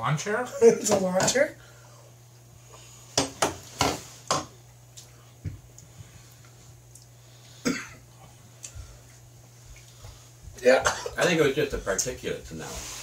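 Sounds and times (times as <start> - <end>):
man coughing: 7.6 - 8.0, 10.8 - 11.3.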